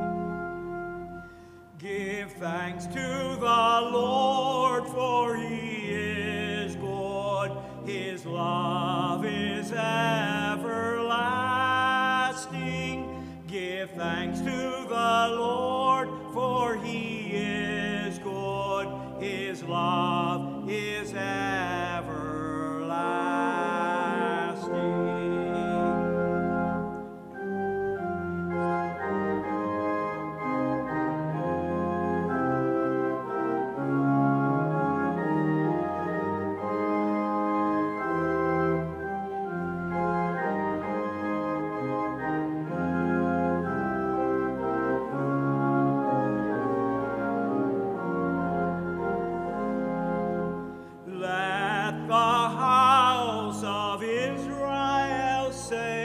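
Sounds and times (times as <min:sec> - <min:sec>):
church organ chords: 0:00.0 - 0:56.0
person singing with vibrato: 0:01.7 - 0:26.6, 0:50.9 - 0:56.0.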